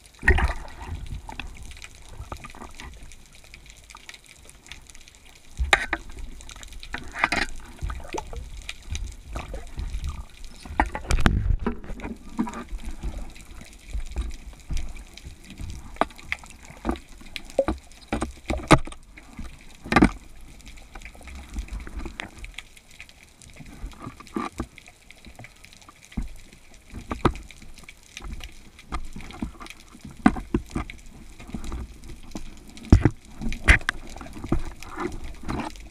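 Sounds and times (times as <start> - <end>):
underwater sloshing and bubbling: 0.0 - 35.9
sharp clicks and knocks: 5.6 - 19.0.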